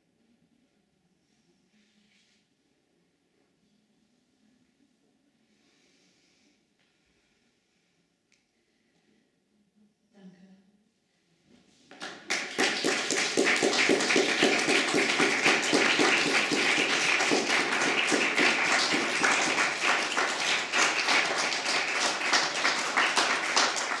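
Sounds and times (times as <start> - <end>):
audience applauding: 11.9 - 24.0.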